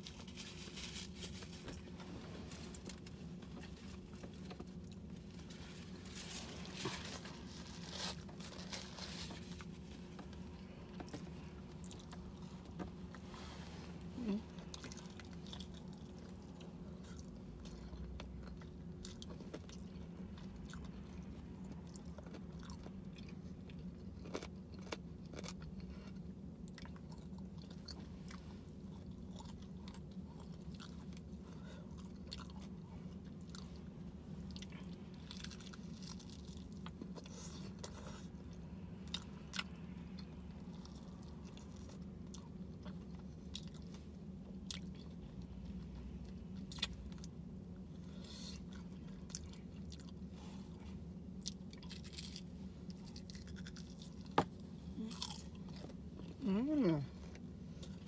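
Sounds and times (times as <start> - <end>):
chewing crispy fried chicken: 0.0 - 13.2, 14.0 - 58.0.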